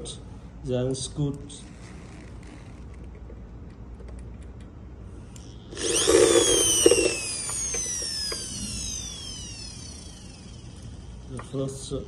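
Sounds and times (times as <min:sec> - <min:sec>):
cordless drill motor whining: 0:05.3 - 0:11.7.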